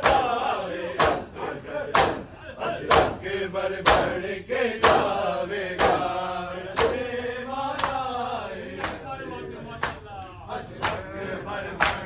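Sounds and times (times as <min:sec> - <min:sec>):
men chanting together: 0:00.0 - 0:12.0
hands slapping bare chests: 0:05.8 - 0:06.1, 0:06.8 - 0:07.0.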